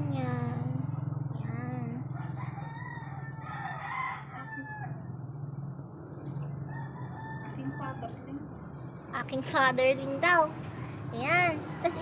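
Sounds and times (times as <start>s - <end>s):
rooster crowing: 2.2s - 5.1s, 6.7s - 8.2s.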